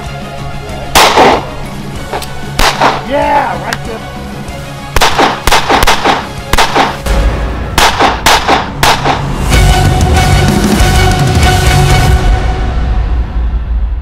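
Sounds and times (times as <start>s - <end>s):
background music: 0.0s - 14.0s
handgun shots: 1.0s - 1.5s, 2.1s - 3.1s, 5.0s - 7.0s, 7.8s - 9.3s.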